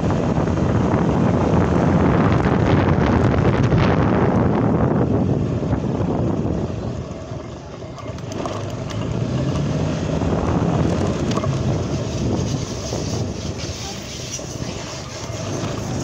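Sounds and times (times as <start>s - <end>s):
vehicle engine running: 0.0s - 16.0s
wind buffeting microphone: 0.0s - 16.0s.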